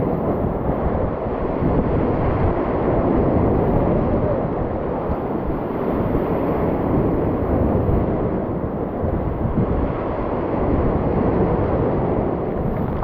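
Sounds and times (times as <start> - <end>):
wind buffeting microphone: 0.0 - 13.0
waves splashing against rocks: 12.6 - 13.0.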